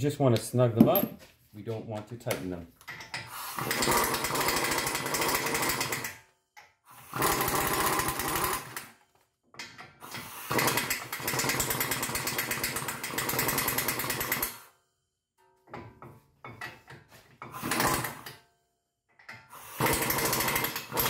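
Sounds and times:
power tool rattling: 0:02.9 - 0:06.2, 0:07.0 - 0:09.0, 0:09.6 - 0:14.6, 0:17.5 - 0:18.4, 0:19.6 - 0:21.0.

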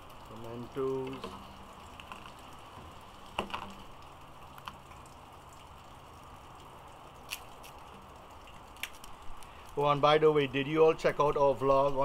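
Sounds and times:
faint steady hum: 0:00.0 - 0:12.0
small clicks of garlic cloves: 0:08.7 - 0:09.8.

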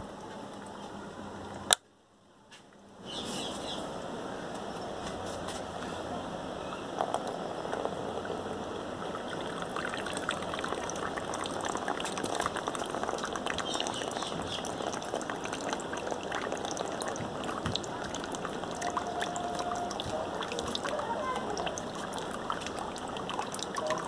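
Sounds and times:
water pouring into plastic tub: 0:07.0 - 0:24.0.

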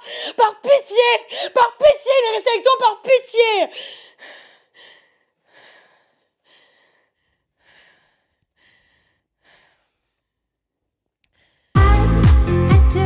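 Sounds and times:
woman breathing heavily: 0:00.0 - 0:00.4, 0:01.3 - 0:01.6, 0:03.7 - 0:10.6, 0:11.3 - 0:11.8
loud music: 0:11.8 - 0:13.0.

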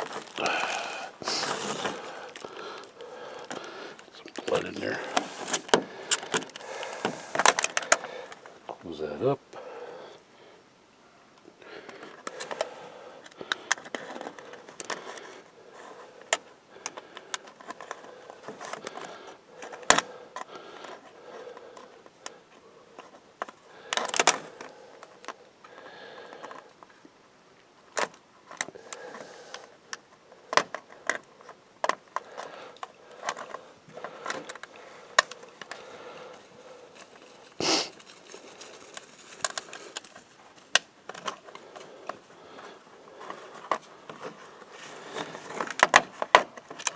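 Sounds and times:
foil plates crinkling: 0:00.0 - 0:08.6, 0:28.5 - 0:46.9.

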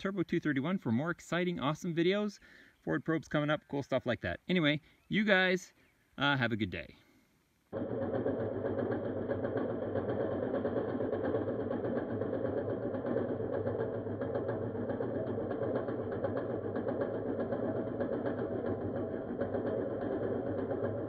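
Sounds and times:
reel mower whirring clatter: 0:07.8 - 0:21.0.

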